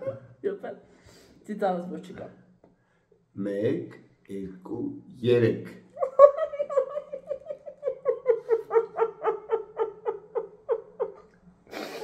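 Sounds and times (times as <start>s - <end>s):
person laughing: 6.0s - 12.0s.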